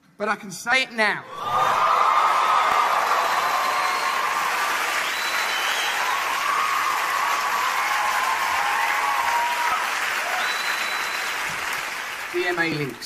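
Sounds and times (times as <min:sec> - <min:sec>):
drawn-out cheers: 0:01.3 - 0:11.4
audience applauding: 0:01.4 - 0:13.0.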